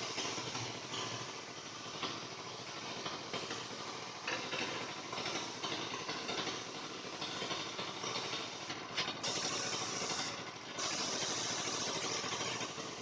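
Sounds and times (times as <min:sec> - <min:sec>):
small motor running: 0:09.2 - 0:13.0.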